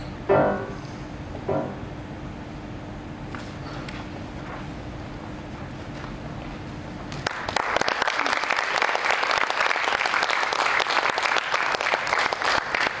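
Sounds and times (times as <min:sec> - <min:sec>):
low hum: 0:00.0 - 0:07.2
audience applauding: 0:07.1 - 0:13.0.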